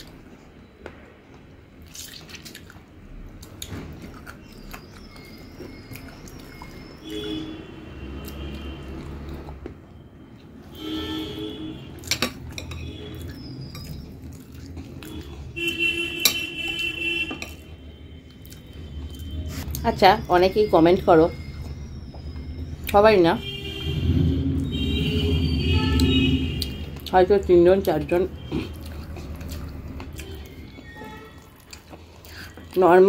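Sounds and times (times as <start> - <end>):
eating by hand: 28.3 - 32.8.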